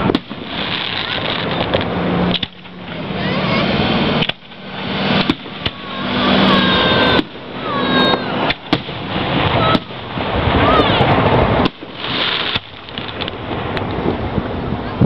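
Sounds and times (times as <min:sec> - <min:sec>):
firework shells bursting: 0:00.0 - 0:03.0, 0:04.2 - 0:06.2, 0:07.0 - 0:14.1
steady background noise: 0:00.0 - 0:15.0.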